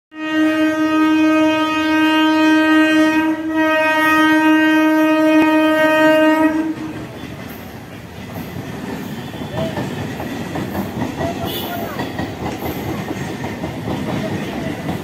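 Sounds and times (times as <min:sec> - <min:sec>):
train horn blasts: 0:00.1 - 0:07.4, 0:11.4 - 0:11.9
train rumbling: 0:00.2 - 0:15.0.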